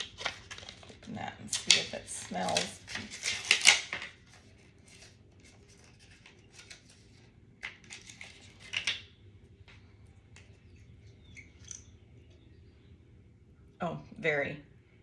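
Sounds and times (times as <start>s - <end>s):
packaging scratching and rustling: 0.0s - 9.0s.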